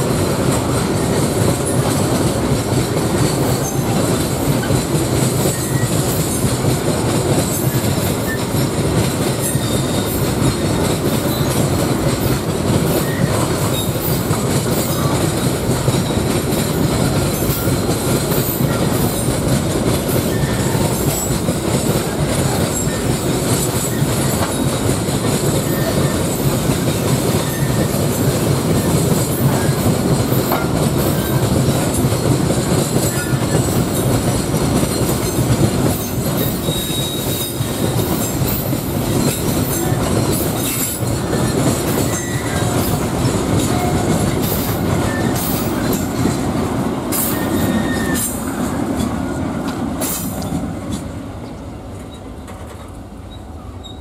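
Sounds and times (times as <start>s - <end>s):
train wheels rumbling on rails: 0.0s - 54.0s
wheel squeals: 5.4s - 6.5s, 7.5s - 11.6s, 12.9s - 15.2s, 20.1s - 21.3s, 25.5s - 26.5s, 27.3s - 31.4s, 34.9s - 46.4s, 47.1s - 49.4s, 53.3s - 54.0s.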